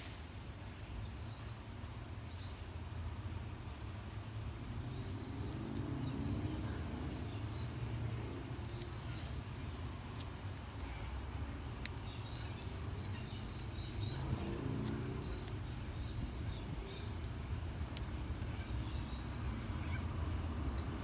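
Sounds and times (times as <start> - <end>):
light clicks of handling tape: 5.4 - 21.0.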